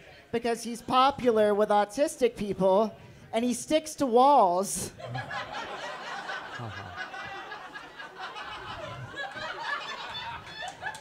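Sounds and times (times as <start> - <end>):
audience laughing: 5.0 - 11.0.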